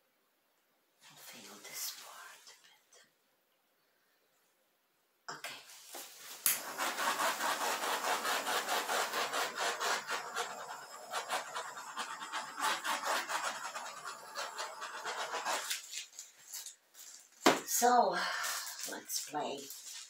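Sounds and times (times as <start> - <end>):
scratchy rubbing strokes: 5.7 - 17.3.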